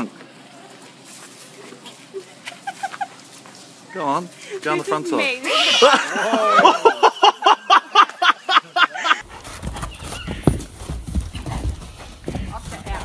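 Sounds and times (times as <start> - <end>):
person laughing hard: 5.5 - 9.2
horse hooves on dirt: 9.2 - 13.0.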